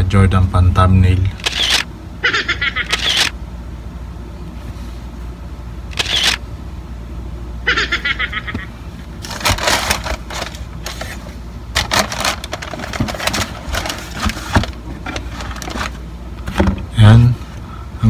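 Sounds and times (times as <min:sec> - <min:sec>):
sneakers crinkling and rustling: 0:09.1 - 0:16.7.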